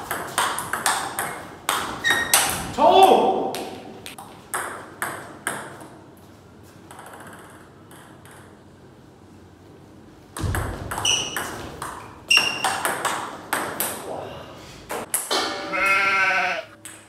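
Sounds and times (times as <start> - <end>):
table tennis ball hits: 0.0 - 2.7, 6.9 - 8.6, 10.4 - 14.0, 14.9 - 15.7.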